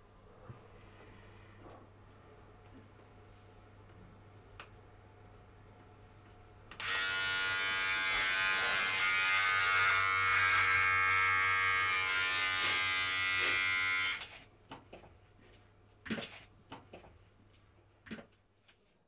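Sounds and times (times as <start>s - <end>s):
electric shaver buzzing: 6.8s - 14.2s.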